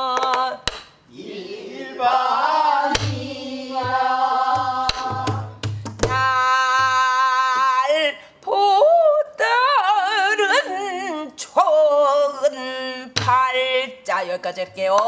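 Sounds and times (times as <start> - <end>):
woman singing with vibrato: 0.0 - 0.7, 2.7 - 15.0
barrel drum thumps and stick hits: 2.9 - 7.0.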